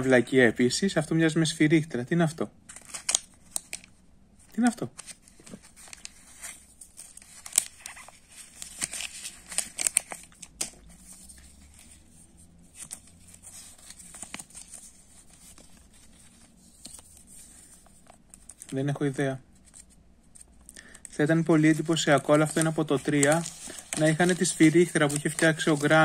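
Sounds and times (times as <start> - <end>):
paper and plastic wrappers crinkling: 2.7 - 18.9, 19.5 - 26.0.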